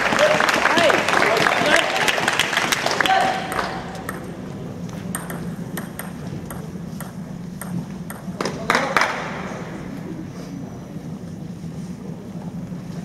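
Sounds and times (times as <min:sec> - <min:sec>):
murmur of voices: 0:00.0 - 0:13.0
table tennis balls clicking: 0:03.4 - 0:08.9.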